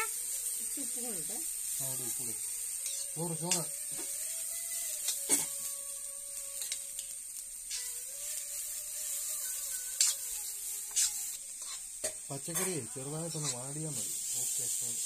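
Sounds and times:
vegetables sizzling in a pan: 0.0s - 15.0s
spatula scraping and knocking pan: 9.4s - 13.7s.

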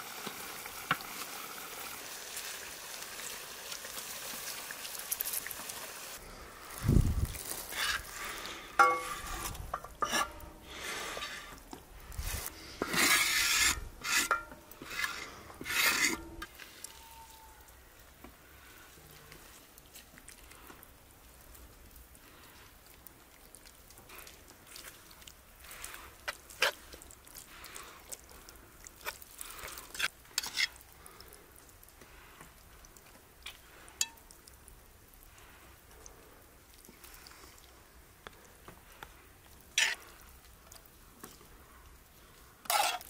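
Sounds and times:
spatula scraping iron pan: 7.7s - 8.1s, 8.8s - 11.5s, 12.8s - 16.5s, 29.9s - 30.8s, 39.8s - 40.1s, 42.6s - 43.0s
ladle and dishes clinking: 8.8s - 10.5s.

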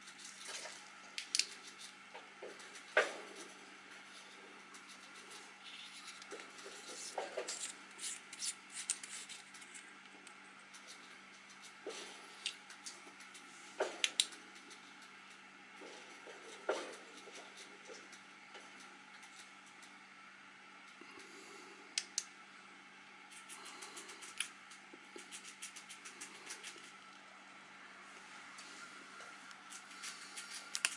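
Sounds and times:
flashlight parts scraping and clicking: 30.4s - 30.9s.

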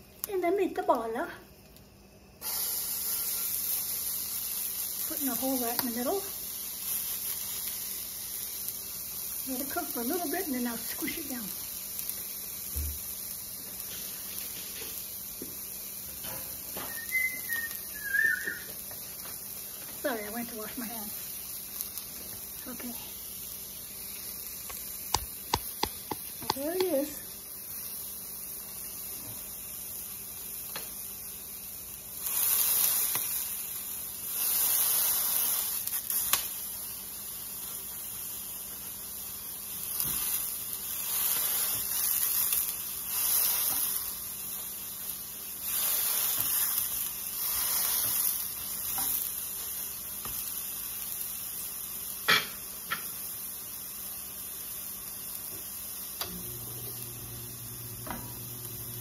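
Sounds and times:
burger patty sizzling: 0.0s - 59.0s.

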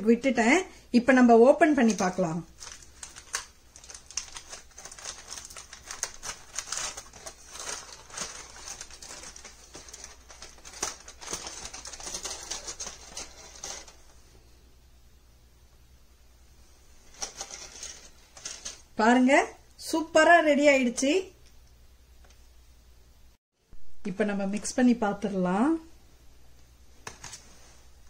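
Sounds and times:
aluminium foil crinkling: 1.6s - 14.2s, 17.0s - 18.9s.

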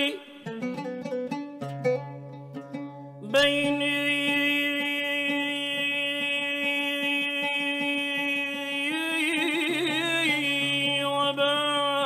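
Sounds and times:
faint oud plucks: 0.0s - 12.0s
man singing long note: 3.2s - 12.0s.

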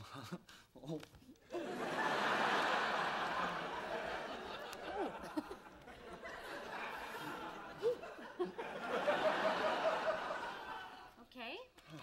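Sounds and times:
audience laughing: 1.5s - 11.1s.

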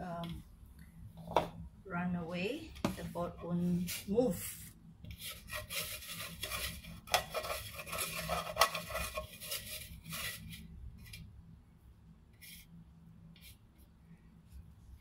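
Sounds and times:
hand scraping dough from bowl: 5.1s - 11.3s.

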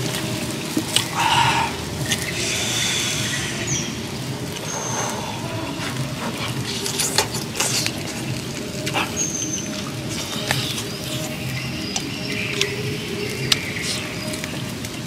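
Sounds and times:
chewing and lip smacking: 5.8s - 14.6s
wet clicks of biting: 13.4s - 14.6s.

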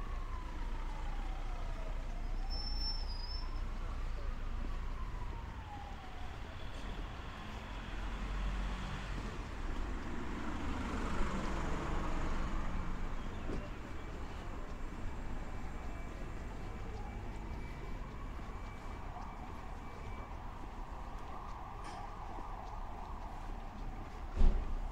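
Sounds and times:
emergency siren wailing: 0.0s - 24.9s
low rumble of street traffic: 0.0s - 24.9s
vehicle passing: 7.4s - 24.9s.

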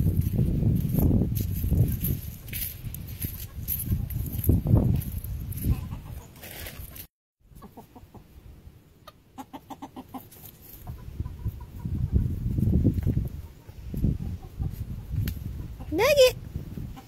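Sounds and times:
chickens clucking: 2.4s - 4.5s, 5.5s - 16.1s.

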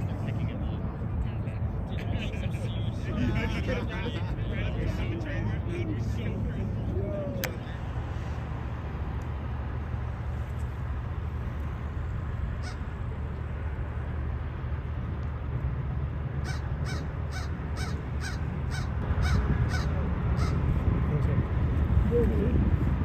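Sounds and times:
low background rumble: 0.0s - 23.0s
crow cawing: 12.6s - 12.8s, 16.4s - 20.6s.

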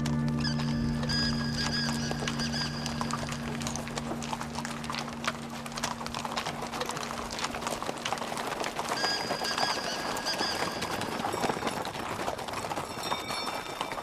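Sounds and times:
low musical drone: 0.0s - 8.8s
horse hooves clip-clopping: 0.0s - 14.0s.

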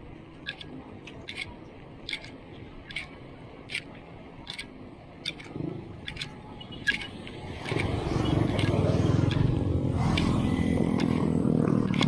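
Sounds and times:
bicycle sharp clicks: 0.2s - 12.0s.

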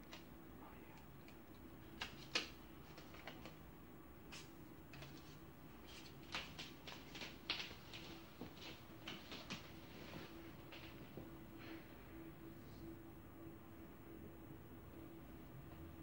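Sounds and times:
paper rustling and crinkling: 1.9s - 3.6s, 4.3s - 11.0s.

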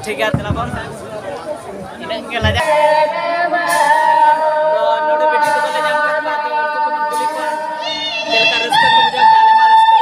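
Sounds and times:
man singing unaccompanied: 2.4s - 10.0s.

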